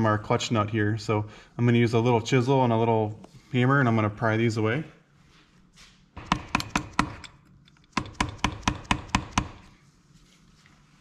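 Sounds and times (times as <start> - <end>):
hammer tapping chisel: 6.2 - 9.7.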